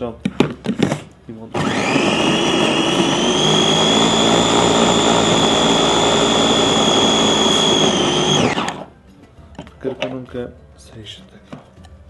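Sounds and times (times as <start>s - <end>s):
food chopper motor whine: 1.6s - 8.9s.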